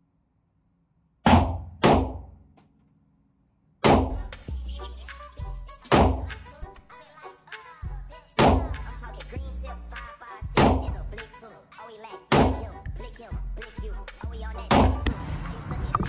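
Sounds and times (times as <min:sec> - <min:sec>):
rap music: 0:03.8 - 0:16.0.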